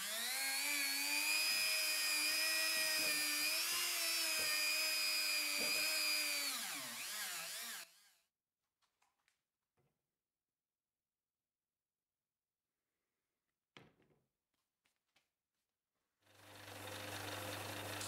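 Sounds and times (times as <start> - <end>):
rotary tool whining: 0.0 - 8.2.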